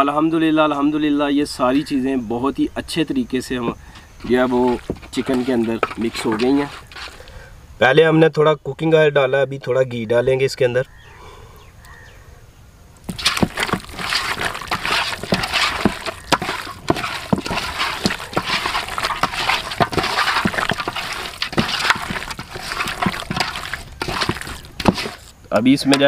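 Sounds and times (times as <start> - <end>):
squelching of wet marinade: 3.9 - 7.4, 13.0 - 25.4.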